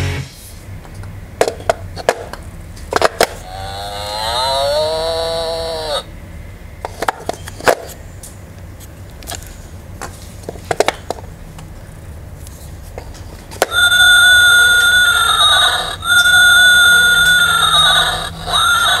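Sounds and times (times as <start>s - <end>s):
electronic horse whinny: 3.4s - 6.1s, 13.7s - 19.0s.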